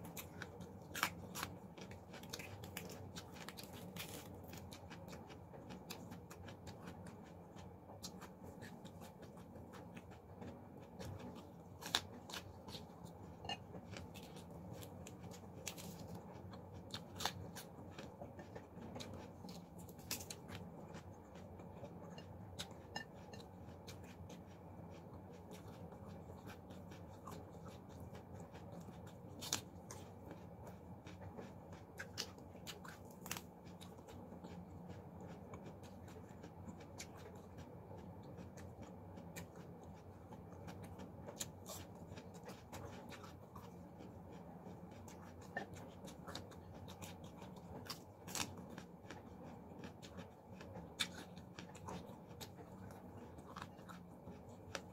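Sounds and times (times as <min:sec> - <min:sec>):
chewing: 0:00.0 - 0:54.9
low steady hum: 0:00.0 - 0:54.9.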